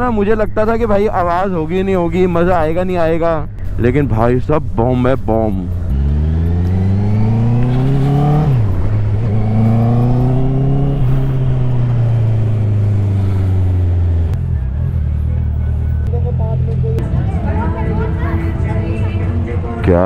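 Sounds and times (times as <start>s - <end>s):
motorcycle engine revving: 5.5s - 19.8s.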